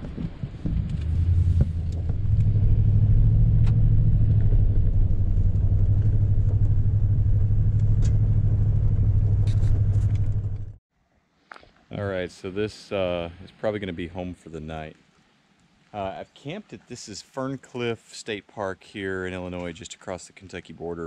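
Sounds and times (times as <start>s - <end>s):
car engine and road noise: 0.0s - 10.8s.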